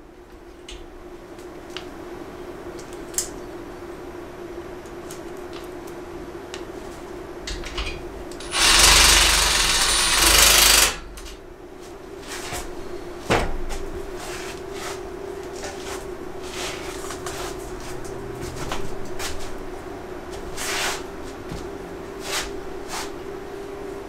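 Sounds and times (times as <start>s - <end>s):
impact driver hammering into metal: 8.4s - 11.2s.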